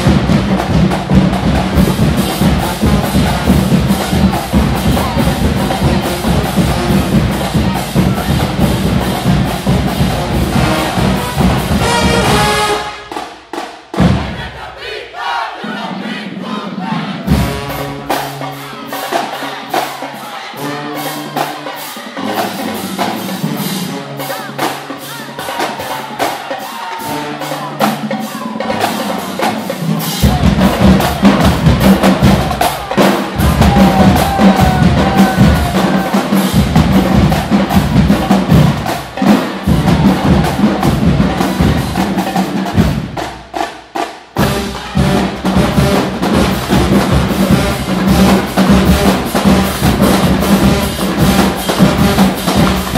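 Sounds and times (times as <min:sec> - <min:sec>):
bass drums: 0:00.0 - 0:14.7, 0:17.2 - 0:18.2, 0:30.1 - 0:43.7, 0:44.4 - 0:52.9
snare and tenor drums: 0:00.0 - 0:15.0, 0:16.8 - 0:52.9.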